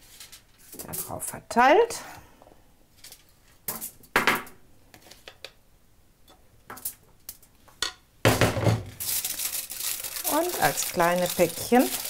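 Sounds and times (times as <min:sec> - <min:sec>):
spoon tapping foil: 0:09.0 - 0:12.0.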